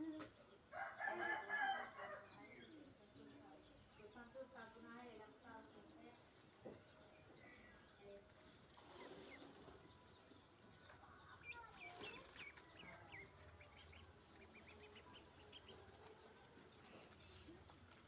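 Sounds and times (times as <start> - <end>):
ducklings peeping: 5.2 - 18.0.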